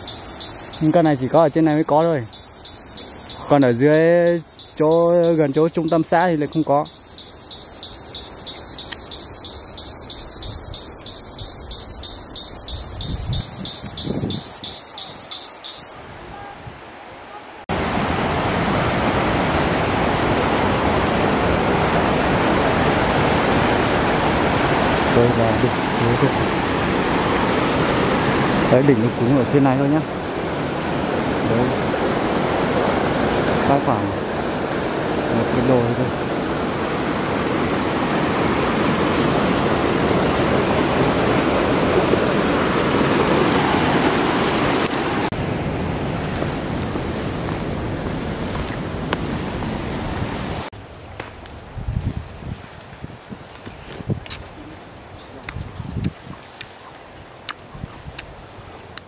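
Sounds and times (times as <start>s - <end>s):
wind buffeting microphone: 8.2s - 15.4s, 51.5s - 56.7s, 57.3s - 59.0s
stream rushing over rocks: 14.6s - 50.7s.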